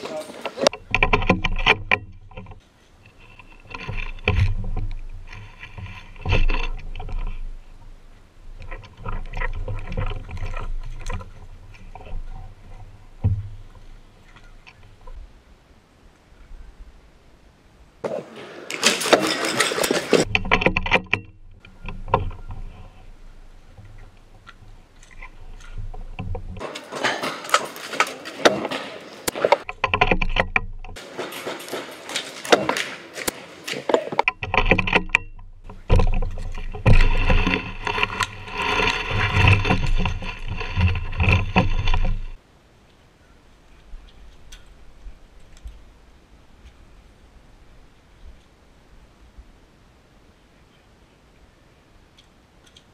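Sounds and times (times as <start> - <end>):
clothing rustling against microphone: 21.6 - 42.4.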